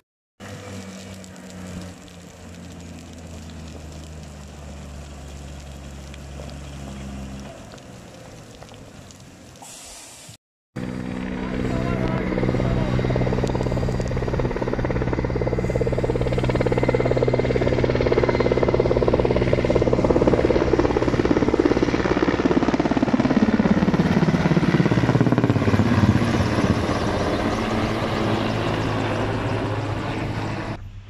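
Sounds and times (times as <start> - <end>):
helicopter rotor beat: 10.8 - 30.8.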